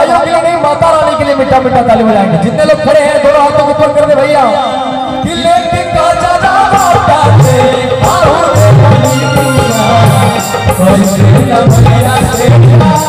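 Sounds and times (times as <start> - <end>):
live band playing devotional song: 0.0 - 13.0
hand drums beat: 6.0 - 13.0.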